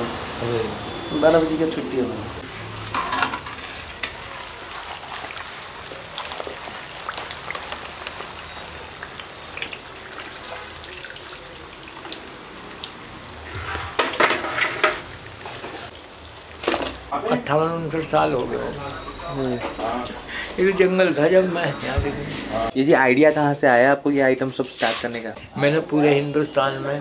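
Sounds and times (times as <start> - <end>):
food deep-frying in hot oil: 0.0 - 17.2.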